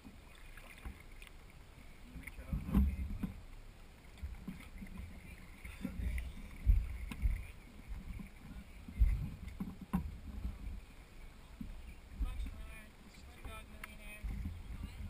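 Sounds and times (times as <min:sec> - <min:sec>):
water noise: 0:00.0 - 0:15.0
hull and paddle knocks: 0:04.2 - 0:10.8.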